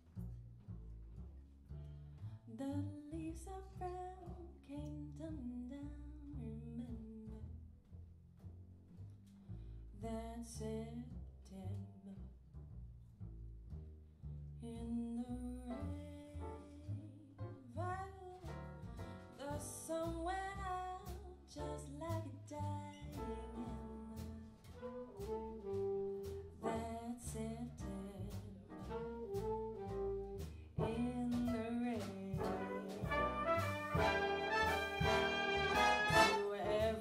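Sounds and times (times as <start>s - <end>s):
walking double bass: 0.0s - 37.0s
steady drum beat: 28.3s - 37.0s
trumpets and trombones: 32.4s - 36.6s
saxophone section: 32.5s - 36.6s.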